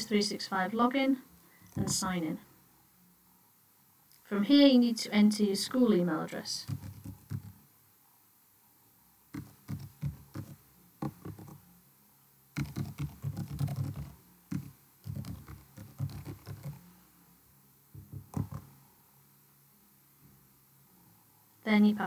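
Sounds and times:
computer keyboard typing: 6.6 - 7.6, 9.3 - 11.6, 12.6 - 16.8, 18.1 - 18.7.

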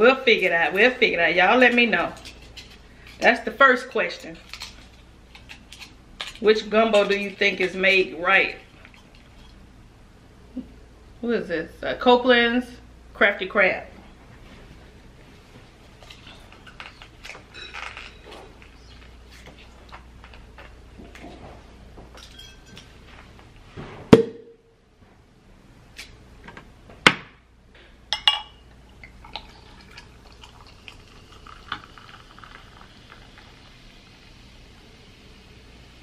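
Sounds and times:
glassware clicking and clinking: 22.2 - 22.9, 28.1 - 28.6
soft fizzing hiss: 28.8 - 36.0
juice pouring over ice: 29.0 - 34.5.

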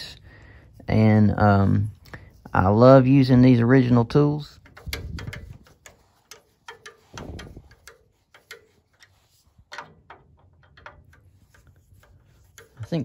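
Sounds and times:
screwdriver turning a screw: 4.5 - 13.0.

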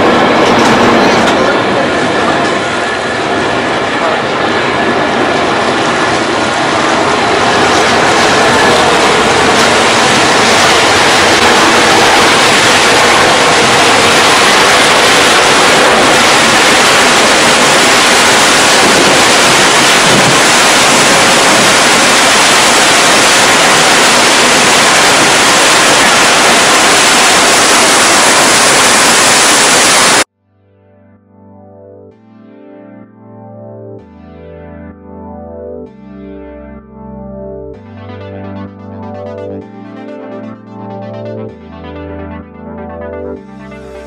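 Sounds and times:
wind buffeting microphone: 0.0 - 30.2
boat wake churning water: 0.7 - 30.3.

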